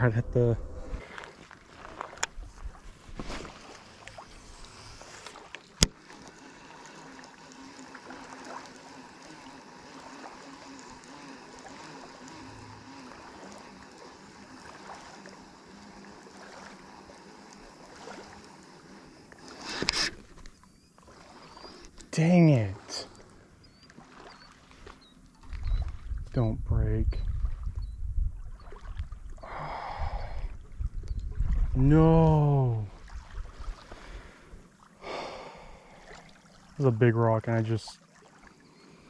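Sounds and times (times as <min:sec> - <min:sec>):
water lapping: 0:00.0 - 0:26.2, 0:27.3 - 0:39.0
fishing reel whirring: 0:03.4 - 0:26.2
reel click: 0:03.6 - 0:22.1.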